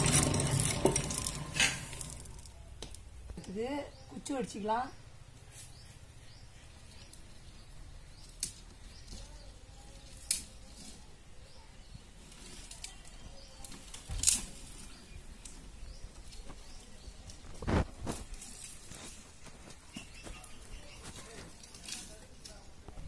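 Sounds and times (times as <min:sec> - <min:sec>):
twigs rustling and snapping: 0:00.0 - 0:03.6, 0:08.1 - 0:11.1, 0:12.2 - 0:23.0
sharp twig cracks: 0:08.2 - 0:08.6, 0:10.2 - 0:10.6, 0:13.6 - 0:14.8.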